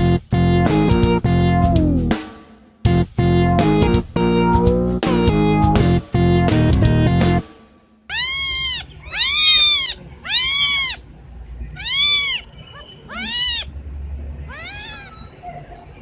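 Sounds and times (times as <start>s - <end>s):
kittens meowing: 8.1s - 13.8s, 14.4s - 16.0s.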